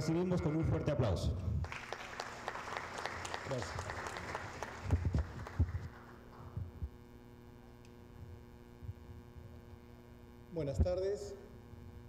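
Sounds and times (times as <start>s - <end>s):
electrical hum: 0.0s - 12.0s
applause: 1.6s - 6.5s.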